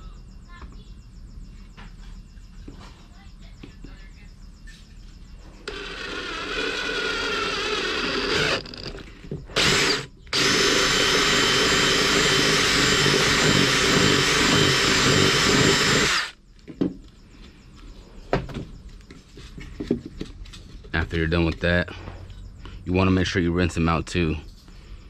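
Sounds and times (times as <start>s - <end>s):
cordless drill spinning in plastic: 5.7s - 16.4s.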